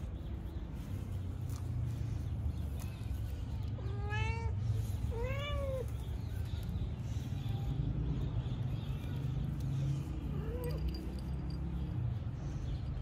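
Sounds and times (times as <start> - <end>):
cat meowing: 3.8 - 5.9.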